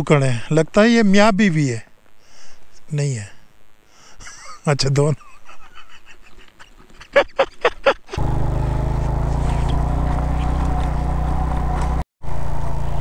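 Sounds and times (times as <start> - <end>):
motorcycle engine running: 8.2 - 13.0.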